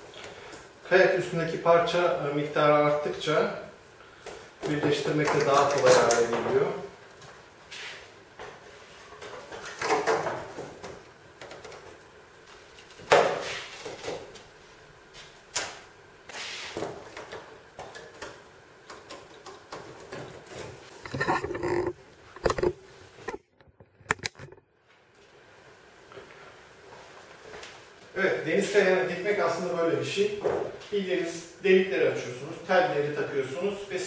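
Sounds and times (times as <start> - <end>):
wood panels knocking and scraping: 9.2 - 11.9.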